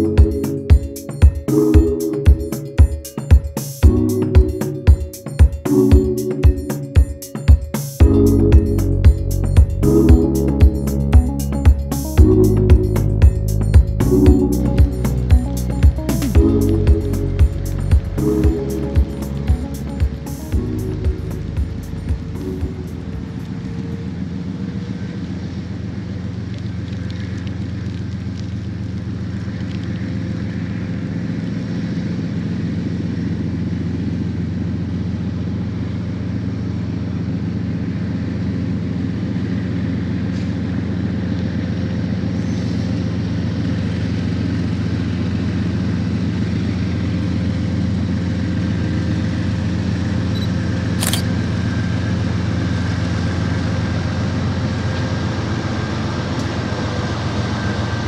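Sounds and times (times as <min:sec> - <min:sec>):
locomotive engine rumble: 0:08.0 - 0:58.0
brief click: 0:50.4 - 0:51.3.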